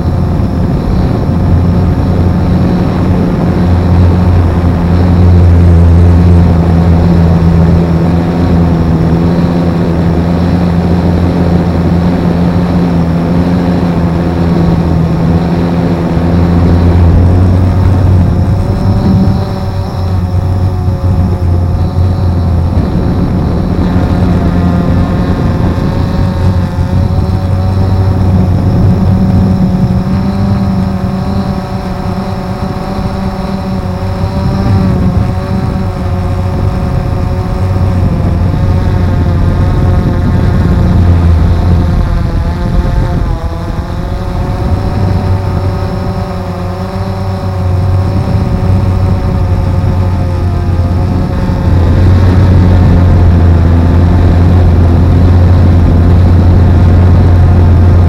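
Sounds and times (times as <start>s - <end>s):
drone motors and propellers humming: 0.0s - 58.0s.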